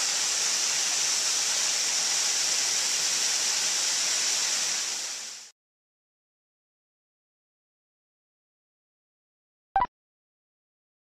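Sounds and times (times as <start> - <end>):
waterfall pouring into pool: 0.0 - 5.5.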